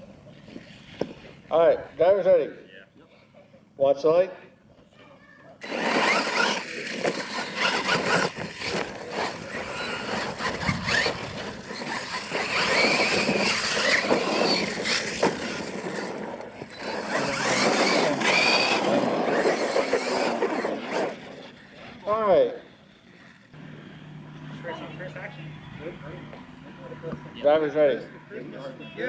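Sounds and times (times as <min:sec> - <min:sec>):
electric motors whining: 0:05.6 - 0:29.0
toy trucks landing knocks: 0:10.4 - 0:20.6.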